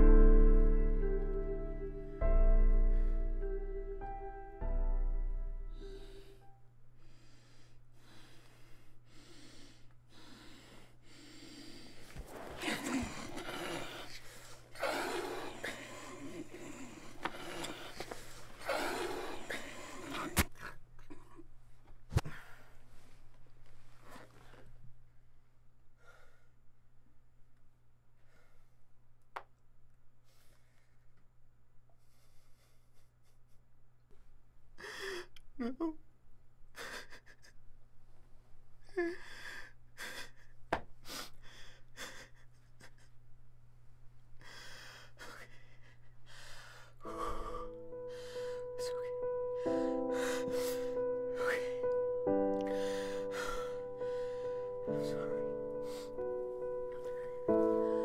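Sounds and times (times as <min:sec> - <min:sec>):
low steady hum: 0:00.0 - 0:12.0
person breathing heavily: 0:02.7 - 0:03.7, 0:05.7 - 0:20.4, 0:32.0 - 0:33.4, 0:34.8 - 0:35.3, 0:39.0 - 0:43.1, 0:44.4 - 0:58.0.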